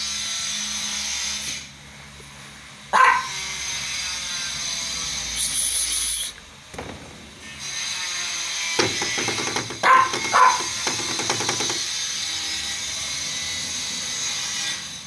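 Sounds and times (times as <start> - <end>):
dog barking: 2.9 - 3.5, 9.8 - 10.8.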